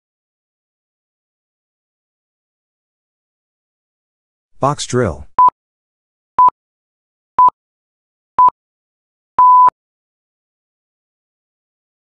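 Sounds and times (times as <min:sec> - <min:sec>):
timer beeps: 0:09.4 - 0:09.7.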